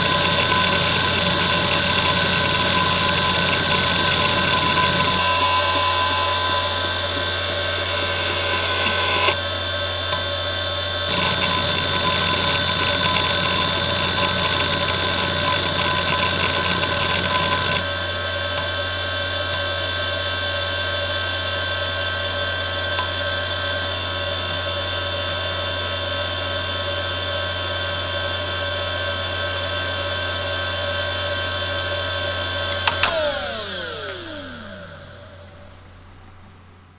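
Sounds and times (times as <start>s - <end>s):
hard drive spinning whine: 0.0s - 36.9s
sharp clicks: 32.8s - 35.0s.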